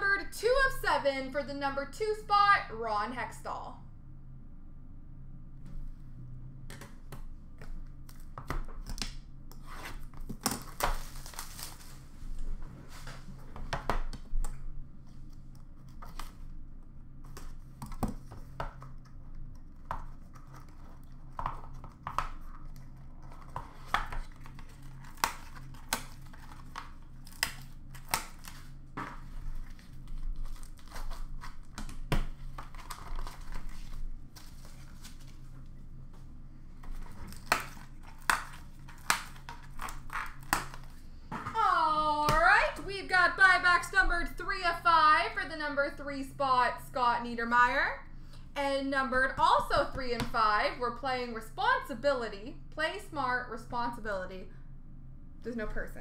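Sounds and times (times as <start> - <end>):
steady low hum: 0.0 - 56.0
cards and plastic sleeves handled: 17.2 - 36.2.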